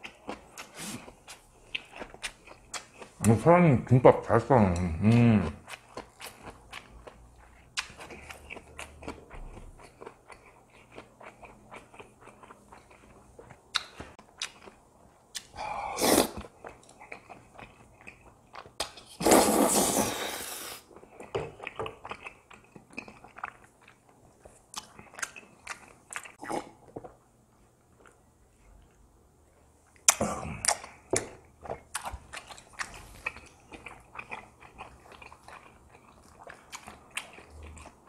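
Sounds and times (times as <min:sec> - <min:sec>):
wet chewing and lip smacks: 0:05.6 - 0:15.6, 0:16.3 - 0:19.2, 0:21.0 - 0:27.2, 0:29.8 - 0:38.0
loud slurps: 0:15.9 - 0:16.4, 0:19.2 - 0:20.8.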